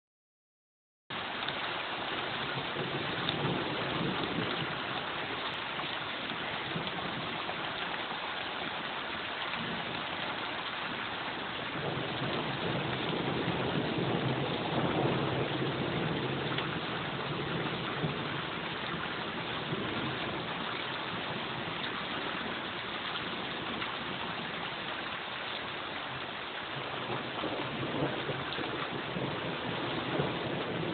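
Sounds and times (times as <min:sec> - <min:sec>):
rain falling steadily: 0:01.1 - 0:30.9.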